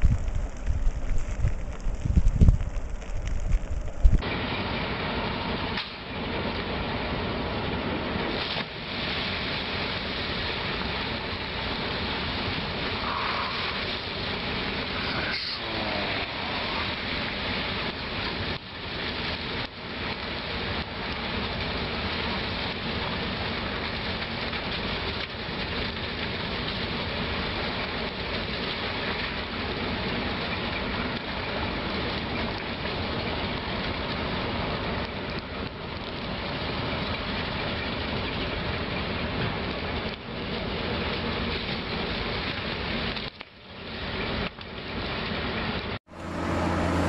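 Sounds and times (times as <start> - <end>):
rushing crackling noise: 0.0 - 47.0
heavy machine engine running: 43.8 - 47.0.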